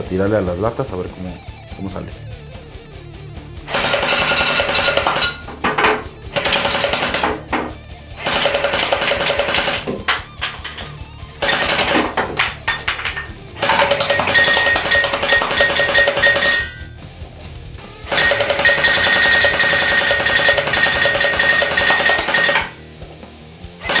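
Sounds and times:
gel blaster firing bursts: 3.7 - 5.5, 6.3 - 7.4, 8.2 - 9.9, 11.4 - 12.2, 13.6 - 16.8, 18.1 - 22.8, 23.8 - 24.0
cans knocked over: 5.2 - 6.1, 11.9 - 14.7.

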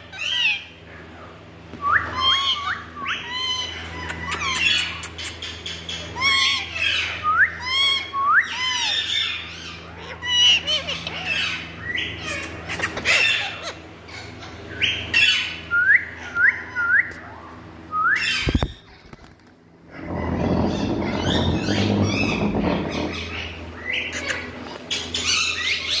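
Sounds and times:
parakeets squawking: 0.0 - 0.8, 2.1 - 15.6, 19.9 - 26.0.

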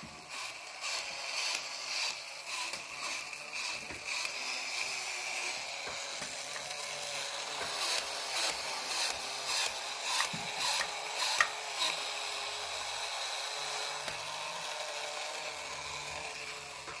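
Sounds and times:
toy motor whirring and clicking: 0.0 - 17.0.

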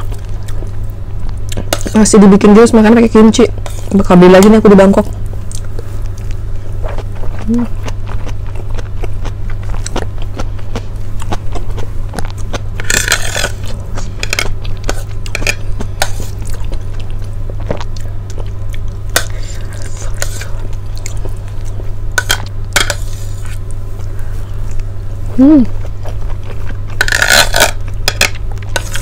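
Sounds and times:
steady low hum: 0.0 - 29.0
person chewing food: 5.1 - 29.0.

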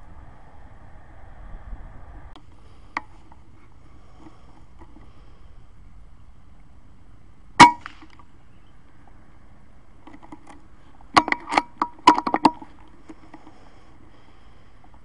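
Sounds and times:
rifle shot: 7.6 - 8.1.

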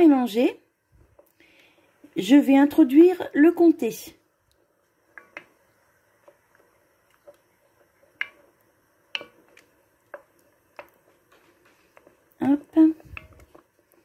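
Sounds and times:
spoon stirring thick sauce: 4.4 - 14.0
spoon tapping against pot: 8.1 - 8.5, 9.1 - 11.0, 13.0 - 13.6.

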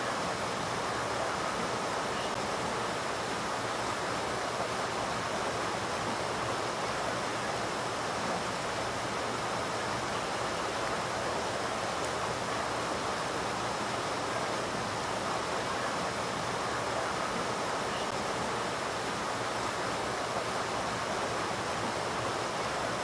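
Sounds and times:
stream rushing over rocks: 0.0 - 23.0.

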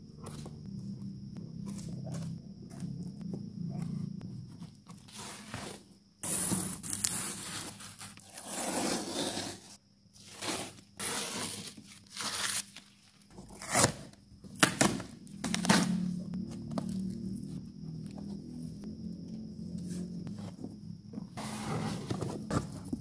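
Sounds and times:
packing tape tearing: 13.5 - 16.0.

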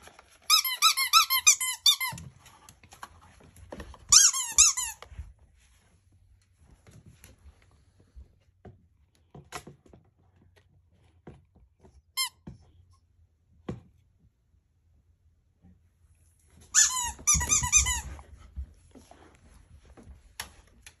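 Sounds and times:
squeaky dog toy squeaking: 0.4 - 2.2, 4.1 - 5.0, 12.2 - 12.4, 16.7 - 18.2.

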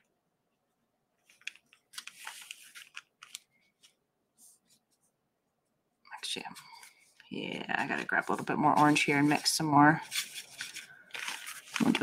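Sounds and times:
paintbrush scraping plastic palette: 6.5 - 12.0.

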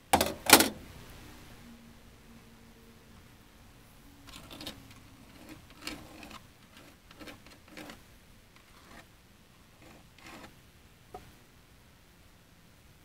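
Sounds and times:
faint scraping and rubbing: 4.2 - 11.4.

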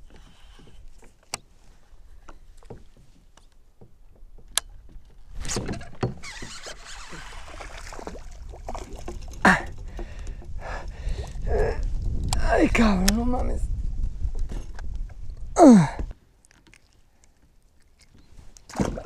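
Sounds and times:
clicks and knocks on a kayak: 0.0 - 7.5, 8.1 - 12.4.

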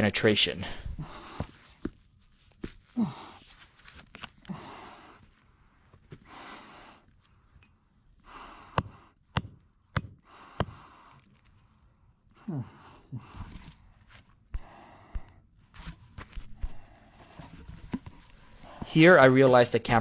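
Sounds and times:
person breathing heavily: 0.6 - 1.9, 2.9 - 3.6, 4.4 - 7.6, 8.2 - 11.6, 12.3 - 19.0
person grunting with effort: 3.0 - 3.4, 12.4 - 13.6.

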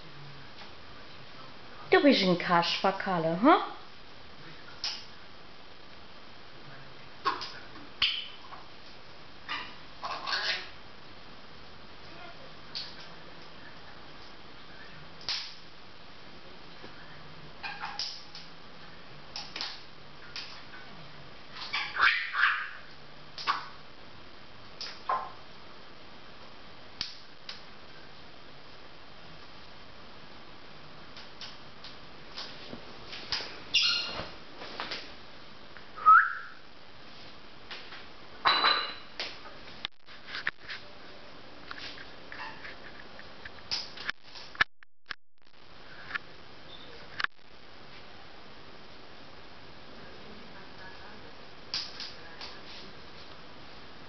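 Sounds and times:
parrot squawking and chirping: 9.5 - 10.7, 21.6 - 22.9, 33.7 - 34.2
parrot whistling and calling: 21.7 - 22.8, 33.7 - 34.2, 36.0 - 36.6.

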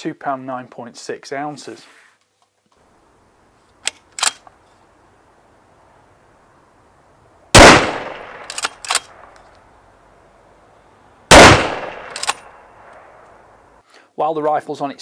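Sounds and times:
sharp rifle bolt clicks: 3.8 - 4.5, 7.6 - 9.7, 11.3 - 13.3
rifle shots ringing: 7.5 - 9.4, 11.3 - 12.9.

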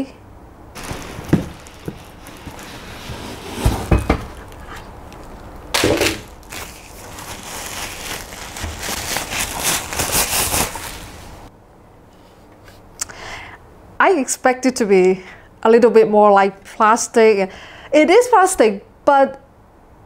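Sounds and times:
plastic bag rustling: 0.8 - 11.5.

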